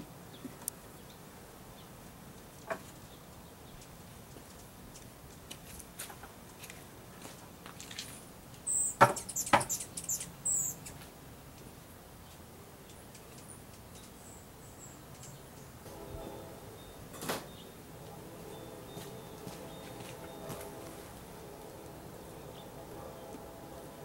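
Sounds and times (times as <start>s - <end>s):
high thin bird chirps: 8.7s - 11.0s.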